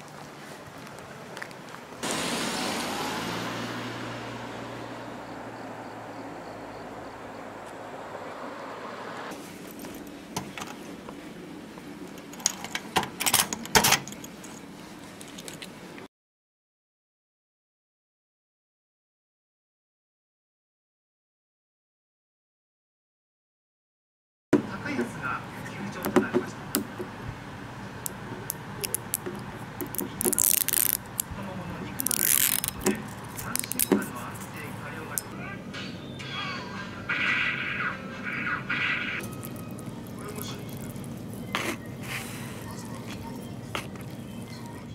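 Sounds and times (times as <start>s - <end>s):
steady outdoor hum: 0.0s - 16.1s, 24.6s - 44.9s
metal locker door and lock clicking: 12.4s - 14.3s
plastic film clicks and crinkles: 28.8s - 31.3s, 31.9s - 34.0s, 39.2s - 41.5s
plastic film tearing: 29.8s - 31.3s, 32.0s - 33.9s.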